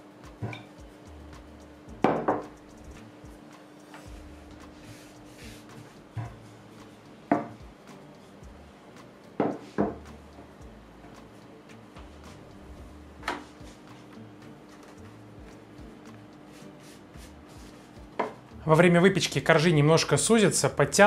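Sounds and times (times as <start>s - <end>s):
rolling pin knocking on surface: 2.0s - 2.6s, 7.3s - 7.6s, 9.4s - 10.1s, 18.2s - 18.4s.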